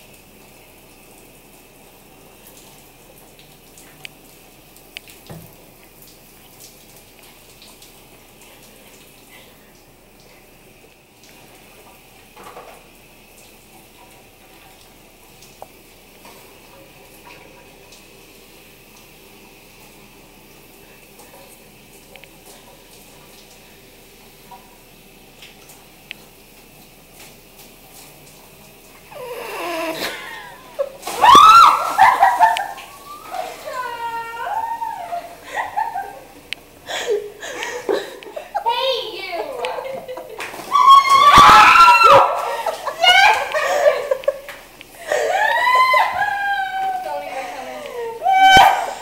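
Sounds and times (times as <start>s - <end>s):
shower water spray hissing: 0.0s - 49.0s
woman laughing and squealing: 29.1s - 36.3s, 36.9s - 49.0s.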